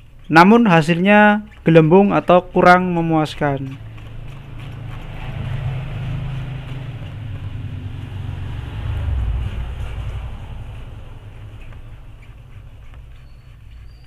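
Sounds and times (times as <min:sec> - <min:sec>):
low engine rumble: 0:03.0 - 0:14.0.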